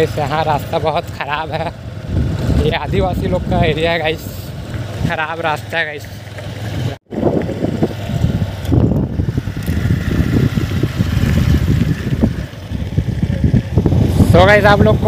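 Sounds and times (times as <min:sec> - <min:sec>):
motorcycle engine running: 0:00.0 - 0:15.0
wind buffeting microphone: 0:01.9 - 0:05.1, 0:06.7 - 0:15.0.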